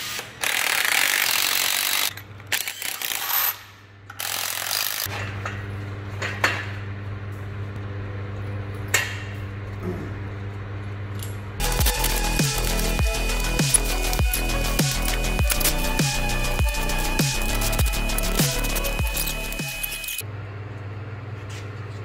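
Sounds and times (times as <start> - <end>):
steady low hum: 5.5 - 20.6
power tool running: 11.6 - 20.2.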